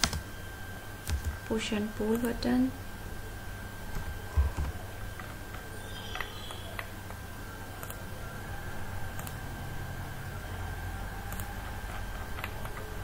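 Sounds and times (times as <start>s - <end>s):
faint high whine: 0.0s - 13.0s
low electrical hum: 0.0s - 13.0s
computer mouse clicks: 7.8s - 8.0s, 9.1s - 9.4s, 11.3s - 12.9s.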